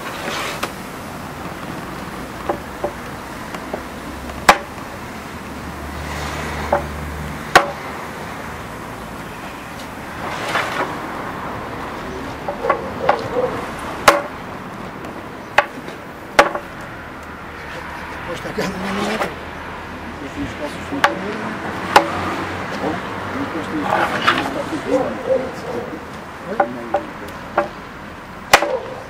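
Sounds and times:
hammer striking iron tyre: 3.7 - 4.8, 6.7 - 7.9, 14.0 - 14.4, 15.6 - 16.8, 21.0 - 21.3, 21.9 - 22.3, 26.6 - 27.8, 28.5 - 29.0.

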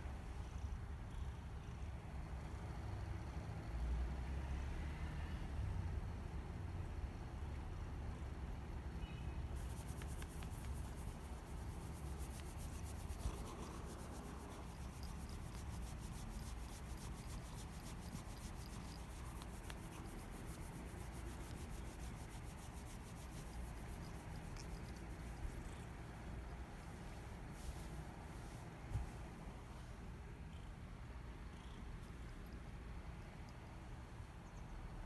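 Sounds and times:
faint scratchy ticks: 9.6 - 25.9
hand stroking cat fur: 9.6 - 29.4.

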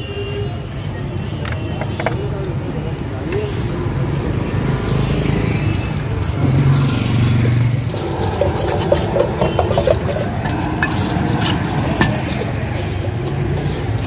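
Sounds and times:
metal ladle scraping a wok: 7.8 - 14.0.

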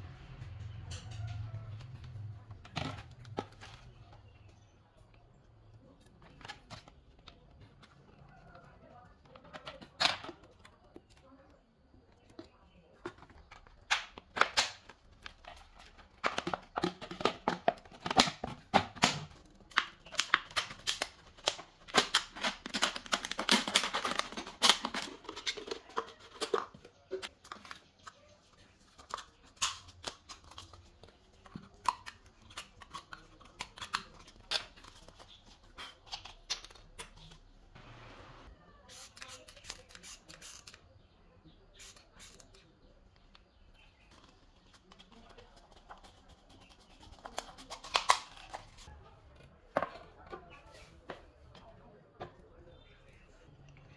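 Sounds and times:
plastic bottles crackling and snipping: 1.8 - 4.7, 5.5 - 37.5, 43.2 - 48.9.

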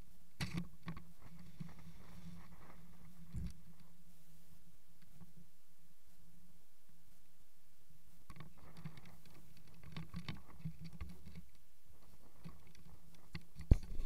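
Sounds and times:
camera clicks and rustles: 8.3 - 14.0.

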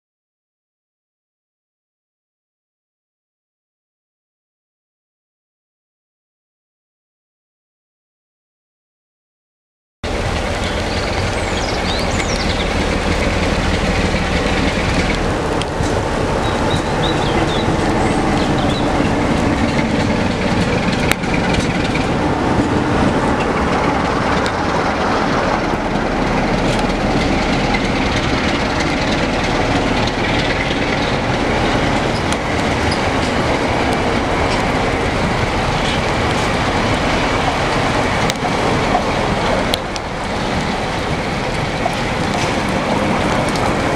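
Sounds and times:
diesel locomotive passing: 10.0 - 43.9
train wheels clattering on rails: 10.1 - 43.9.

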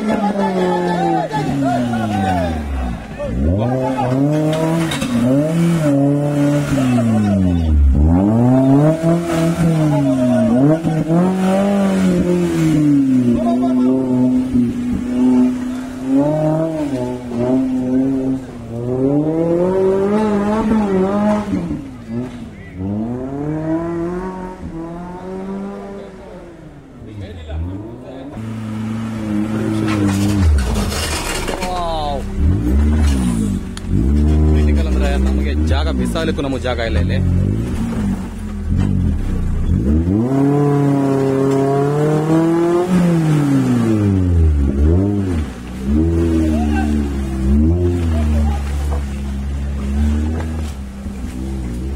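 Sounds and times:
jeep engine revving hard: 0.0 - 26.9, 27.6 - 31.6, 32.2 - 51.9.

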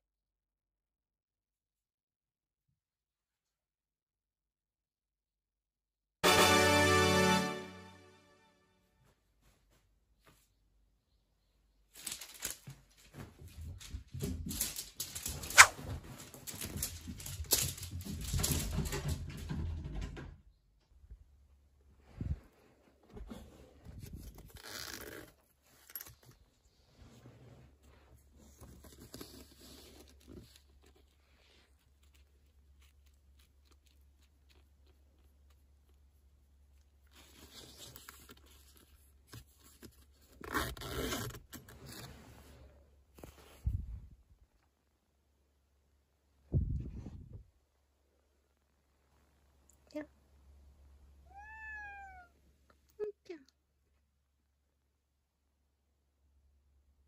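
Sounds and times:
duvet fabric rustling: 9.0 - 10.6
hand scraping fabric mesh: 15.4 - 15.8.

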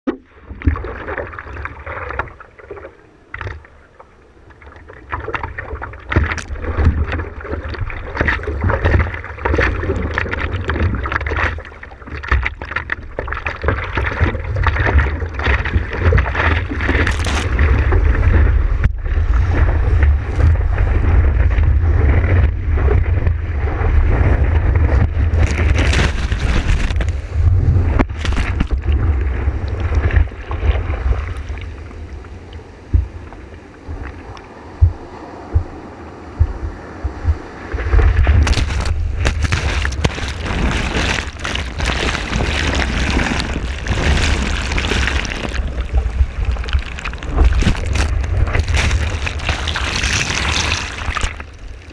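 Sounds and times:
low rumble of wind and water: 0.0 - 51.9
hands paddling water: 5.2 - 18.5, 24.9 - 27.3, 28.0 - 29.0, 37.9 - 51.9
whitewater washing over board: 5.3 - 31.2, 37.2 - 51.9
water splashing against board: 24.6 - 27.3, 28.0 - 30.8, 37.9 - 51.9.

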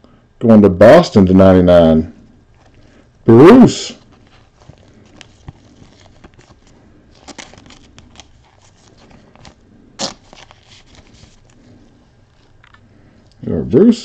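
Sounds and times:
packaging crinkling: 4.0 - 13.4.

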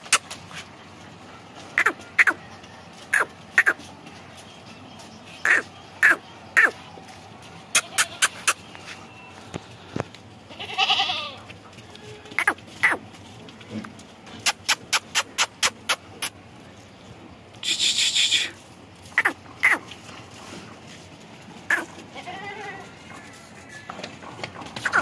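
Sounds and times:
goat bleating: 7.7 - 8.6, 10.4 - 13.0, 21.7 - 23.0.

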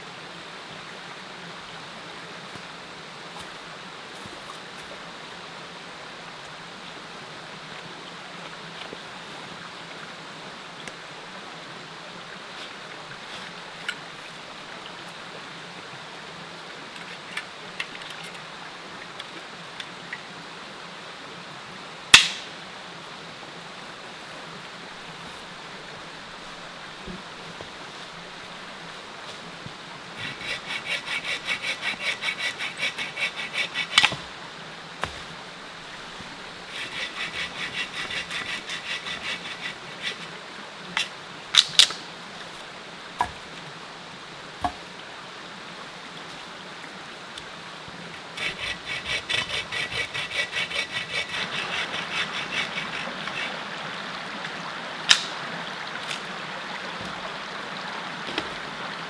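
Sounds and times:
creek rushing: 0.0 - 59.0
sharp crack: 22.2 - 22.5, 55.1 - 55.4
hand saw cutting wood: 30.2 - 34.2, 36.6 - 40.3, 48.4 - 53.6.

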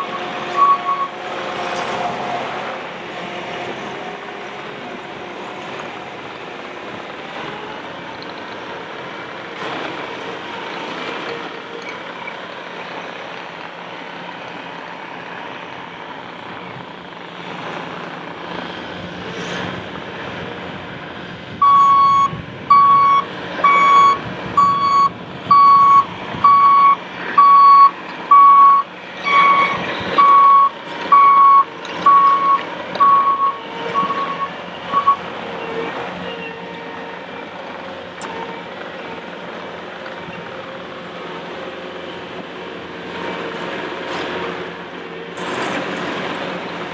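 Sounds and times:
backup alarm beeping: 0.0 - 1.1, 21.6 - 35.2
diesel engine running: 0.0 - 46.9.

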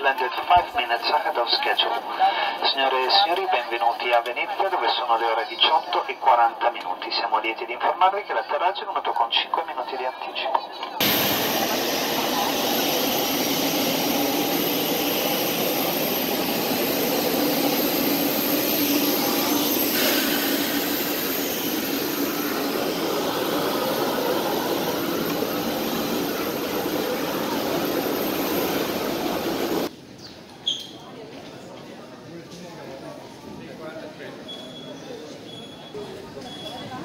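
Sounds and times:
jet engines roaring: 8.8 - 29.9.

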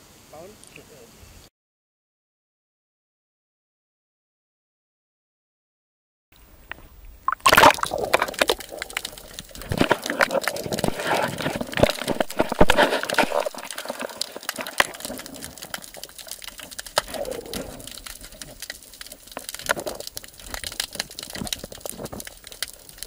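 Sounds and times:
water sloshing and gurgling underwater: 6.4 - 23.0
sharp clicks and crackles: 6.6 - 23.0.

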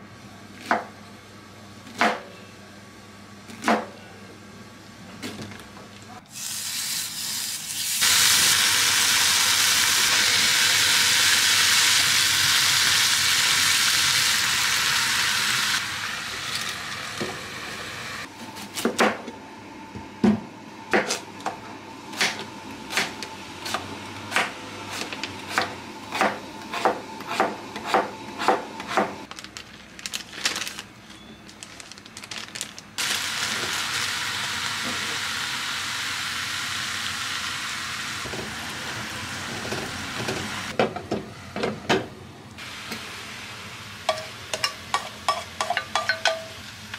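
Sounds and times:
food sizzling in a pan: 6.3 - 18.3, 33.0 - 40.7, 42.6 - 46.9.

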